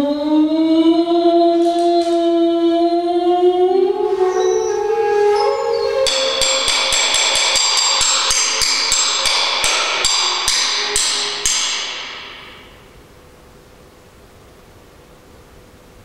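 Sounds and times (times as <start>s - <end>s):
held pitched tone: 3.1s - 12.8s
small metal percussion ringing: 5.4s - 12.8s.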